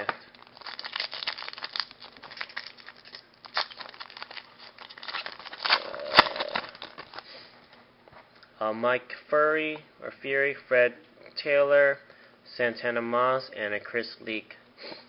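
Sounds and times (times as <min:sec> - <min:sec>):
foil crinkling: 0:00.0 - 0:07.4
foil tearing: 0:00.4 - 0:07.3.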